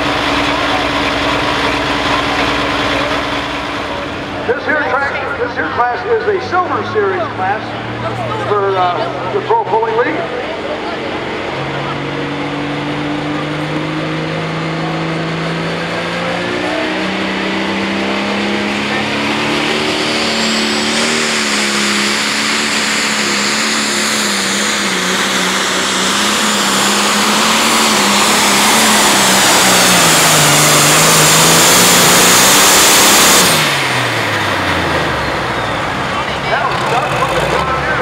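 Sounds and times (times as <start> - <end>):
diesel engine revving: 0.0 - 38.0
high turbo whine: 0.0 - 38.0.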